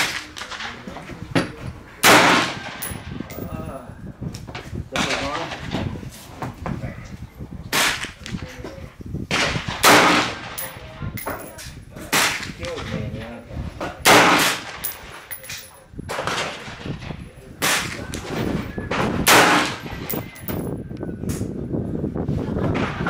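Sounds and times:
rifle shots: 2.0 - 3.0, 9.3 - 10.8, 14.1 - 15.2, 19.3 - 20.3.

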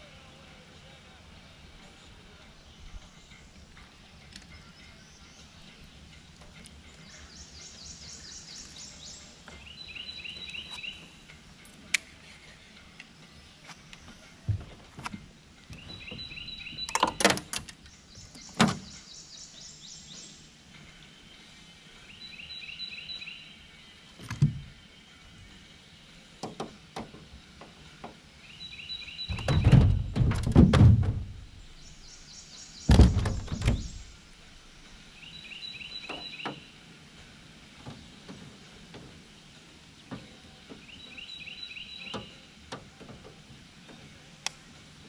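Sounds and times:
bird singing: 0.0 - 14.9, 15.6 - 30.3, 31.0 - 36.9, 39.9 - 42.6
thumps on a boat hull: 29.3 - 31.4, 32.9 - 34.0.

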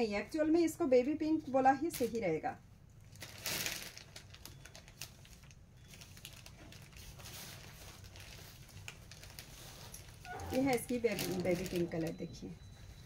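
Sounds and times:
fabric rustling: 3.1 - 12.2.

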